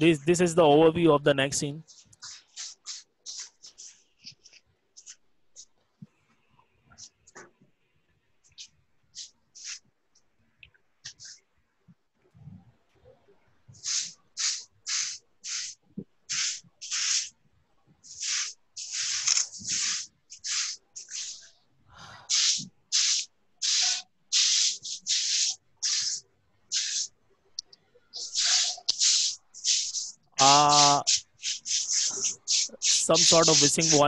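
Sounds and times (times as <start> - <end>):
microphone hissing bursts: 13.8 - 17.3, 18.0 - 21.5, 22.2 - 27.1, 28.2 - 34.0.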